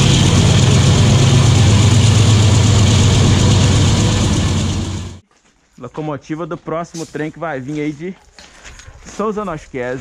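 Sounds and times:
freight train deep rumble: 0.0 - 5.2
wheels rushing on rail: 0.0 - 5.2.

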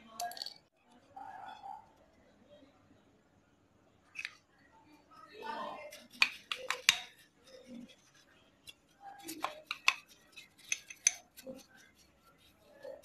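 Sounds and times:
metallic clicks of metal parts: 8.7 - 11.7.

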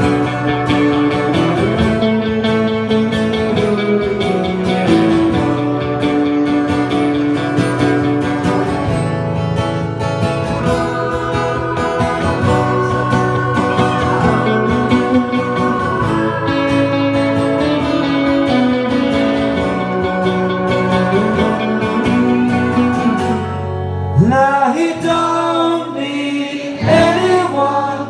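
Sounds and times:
strummed guitar chords: 0.0 - 28.0
man singing: 10.6 - 19.2, 19.8 - 23.5, 24.1 - 28.0.

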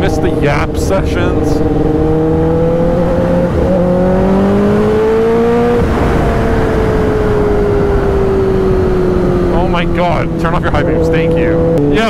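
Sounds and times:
motorcycle engine revving: 0.0 - 12.0
wind noise: 0.0 - 12.0.

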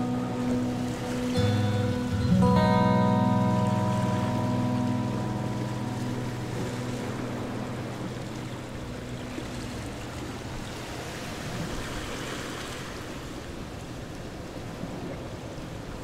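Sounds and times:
acoustic guitar music: 0.0 - 11.5
open water rushing: 0.0 - 16.0
wind: 0.0 - 16.0.

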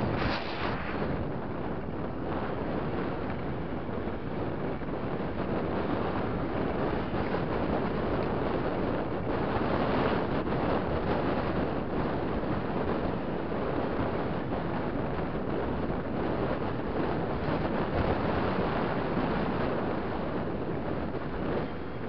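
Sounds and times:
wind buffeting microphone: 0.0 - 22.0.

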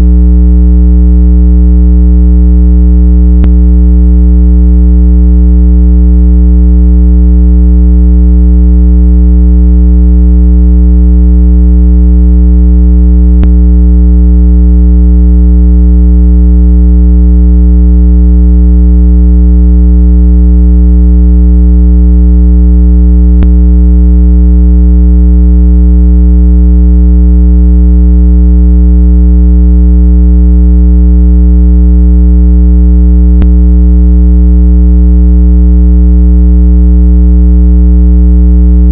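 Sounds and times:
synthesized low-pitched tone: 3.4 - 3.6, 13.4 - 13.6, 23.4 - 23.6, 33.4 - 33.7.

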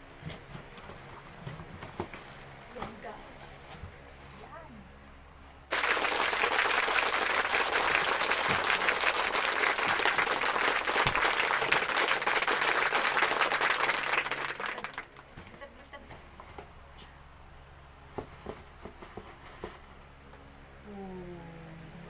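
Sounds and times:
crowd applause: 5.7 - 15.3.

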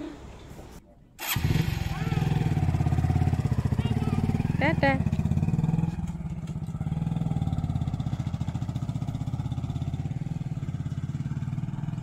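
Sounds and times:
motorcycle engine running: 1.2 - 12.0.

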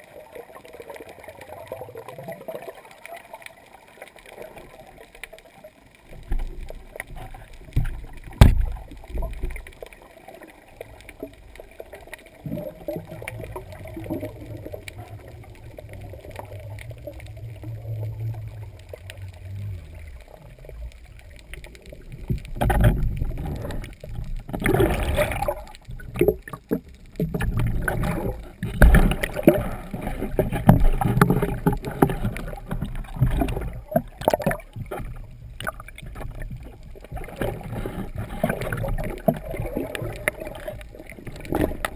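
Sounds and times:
water sloshing and splashing: 0.0 - 41.9
sharp knock underwater: 7.8 - 8.8.

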